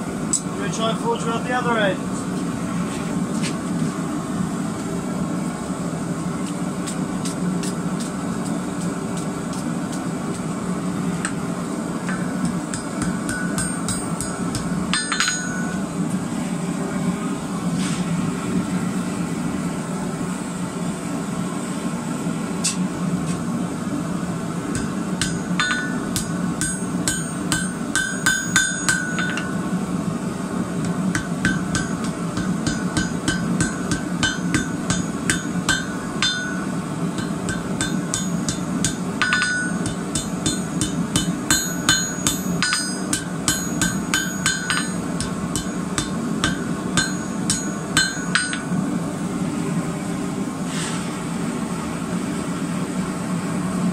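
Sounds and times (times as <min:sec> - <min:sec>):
hammer striking metal on anvil: 0:12.1 - 0:15.8, 0:24.7 - 0:29.7, 0:30.8 - 0:48.8.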